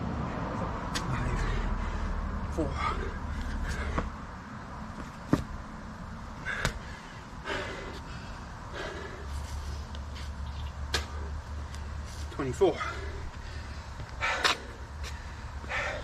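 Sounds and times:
man breathing hard: 0:01.2 - 0:04.6, 0:06.3 - 0:10.0, 0:11.1 - 0:16.0
knocks against asphalt: 0:05.0 - 0:05.6.

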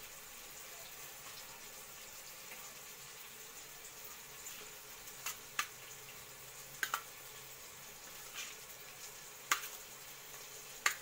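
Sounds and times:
faint steady hiss: 0:00.0 - 0:11.0
fish clicking against steel bowl: 0:06.8 - 0:07.1, 0:09.5 - 0:09.8.

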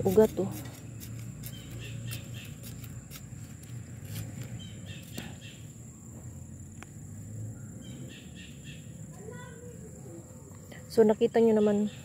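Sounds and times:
trowel digging soil: 0:00.0 - 0:05.2
high insect trill: 0:00.0 - 0:12.0
faint bird chirps: 0:07.4 - 0:12.0.

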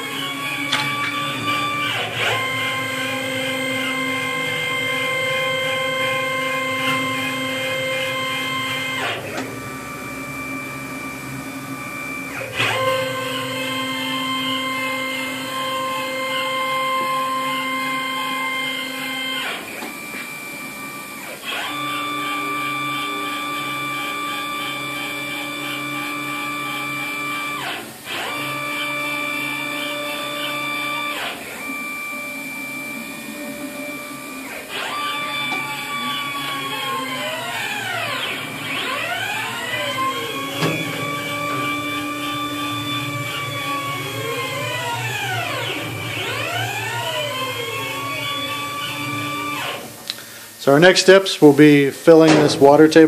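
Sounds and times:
stepper motors whining: 0:00.0 - 0:53.0.

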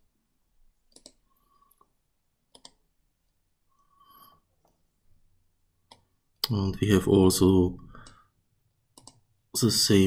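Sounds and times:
faint computer mouse clicks: 0:00.9 - 0:01.2, 0:02.5 - 0:02.8, 0:09.0 - 0:09.2.

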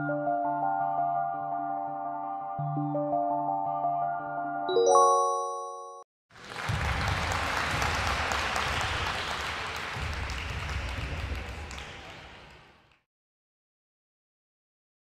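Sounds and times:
recorded crowd applause: 0:06.3 - 0:13.0.

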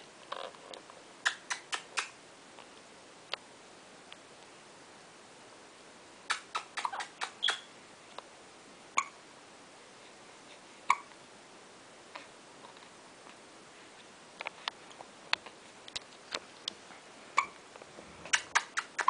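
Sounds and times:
baby squeaks and clicks: 0:06.3 - 0:07.7, 0:17.4 - 0:17.6.

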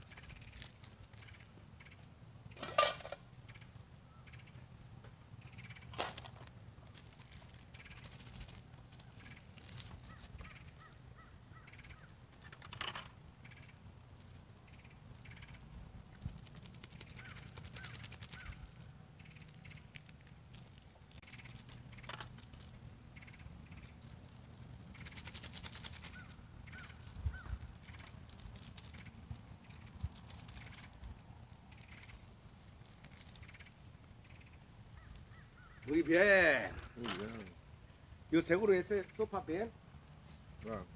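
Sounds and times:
light clatter: 0:00.0 - 0:03.6
faint crackling: 0:00.0 - 0:38.1
birds calling: 0:00.0 - 0:39.7.

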